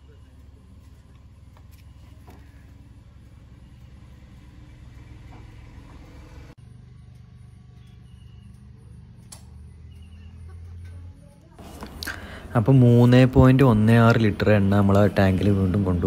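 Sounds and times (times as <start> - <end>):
fuel pump motor humming: 0.0 - 10.8.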